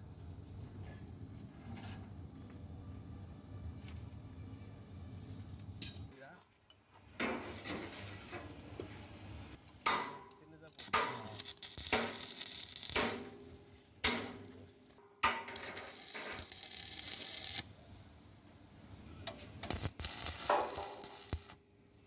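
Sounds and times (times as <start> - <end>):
welding arc crackling and hissing: 10.7 - 14.7, 15.3 - 17.7, 19.3 - 21.6.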